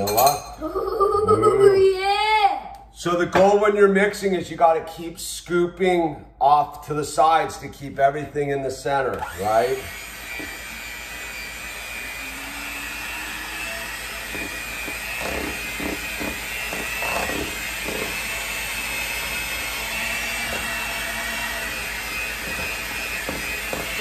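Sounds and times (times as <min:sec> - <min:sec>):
electric mixer whining: 0:09.1 - 0:24.0.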